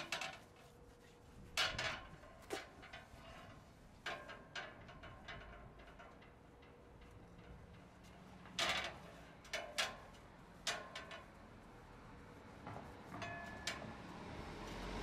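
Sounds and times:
metal clanking on steel plates: 0:01.7 - 0:11.3, 0:13.2 - 0:13.8.

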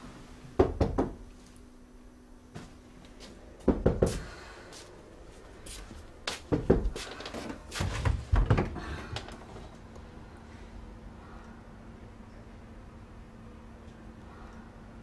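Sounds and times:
knocking on a door: 0:00.6 - 0:01.2, 0:03.6 - 0:04.2, 0:06.5 - 0:07.0.

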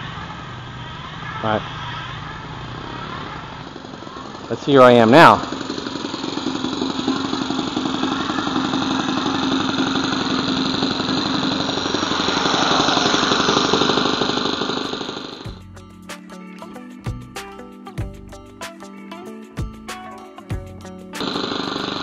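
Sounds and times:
model airplane engine idling: 0:00.0 - 0:15.6, 0:21.2 - 0:22.0
music: 0:15.4 - 0:22.0.

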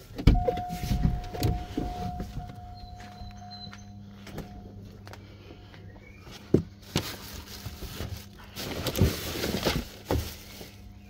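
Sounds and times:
cardboard and plastic rustling: 0:06.3 - 0:11.0.

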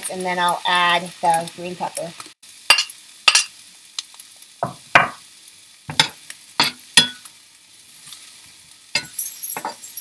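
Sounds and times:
vegetables sizzling in oil: 0:00.0 - 0:10.0.

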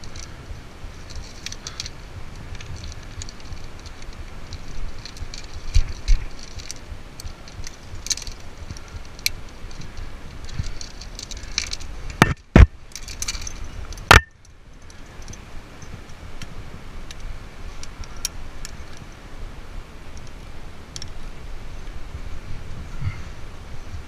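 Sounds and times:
climbing gear clinking: 0:00.0 - 0:16.2
carabiner clicks: 0:01.0 - 0:16.5.

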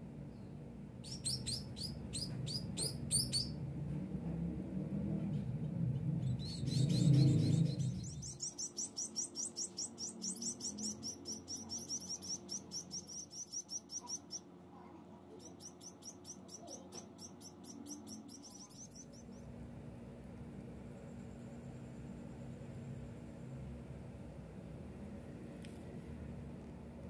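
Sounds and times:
nestlings chirping rapidly: 0:01.0 - 0:03.6, 0:06.2 - 0:14.5, 0:15.3 - 0:19.6
low rumble of handling: 0:02.0 - 0:08.4, 0:18.8 - 0:27.0.

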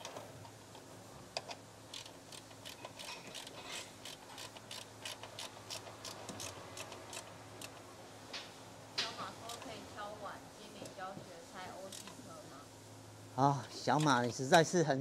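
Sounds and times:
ratchet wrench clicking: 0:01.4 - 0:07.8.

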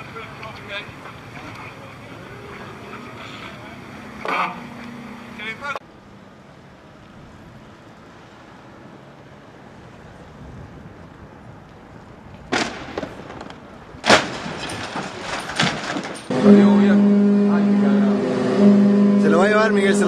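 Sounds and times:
loud crashing impacts: 0:14.0 - 0:17.0.

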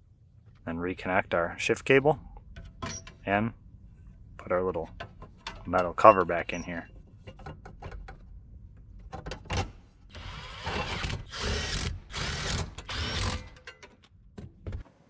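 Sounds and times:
cordless drill whine: 0:10.2 - 0:13.4.

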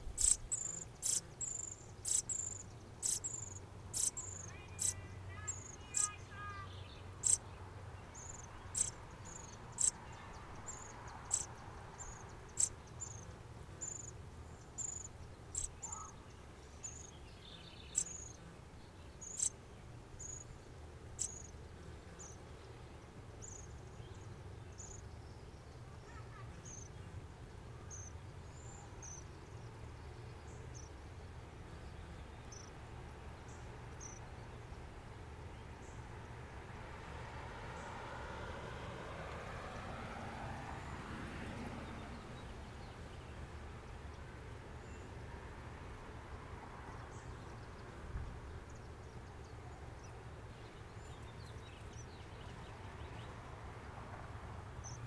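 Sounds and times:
bird chip calls: 0:00.0 - 0:07.4, 0:08.2 - 0:10.0, 0:10.6 - 0:13.2, 0:14.8 - 0:16.2.

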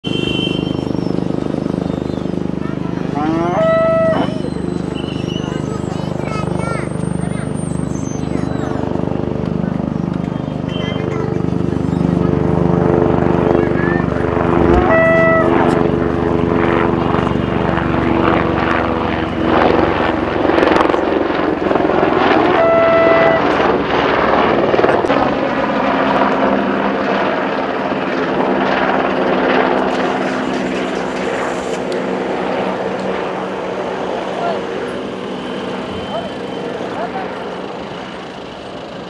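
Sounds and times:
helicopter flying overhead: 0:00.0 - 0:39.0
short high tone: 0:02.7 - 0:06.0, 0:14.6 - 0:15.8.

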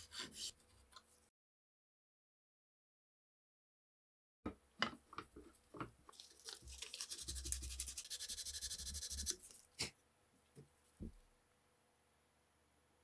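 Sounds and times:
sandpaper scratching on wood: 0:06.7 - 0:09.5.

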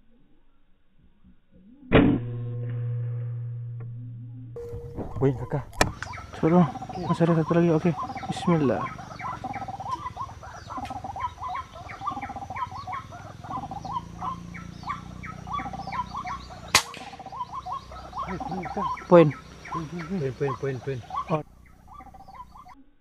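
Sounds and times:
rapidly repeating bird calls: 0:05.2 - 0:23.0
air rifle shot: 0:16.7 - 0:17.4.

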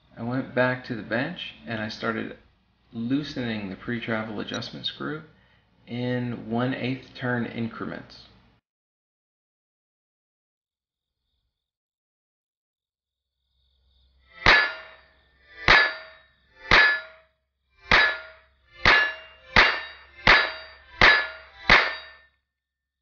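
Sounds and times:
metallic target ringing: 0:14.4 - 0:17.2, 0:17.9 - 0:22.3.

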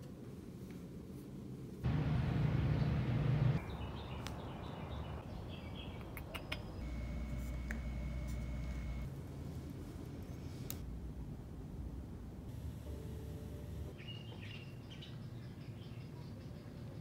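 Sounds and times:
low hum: 0:01.8 - 0:05.5, 0:06.8 - 0:14.0
small birds chirping: 0:02.7 - 0:09.1
high thin tone: 0:06.8 - 0:09.1.

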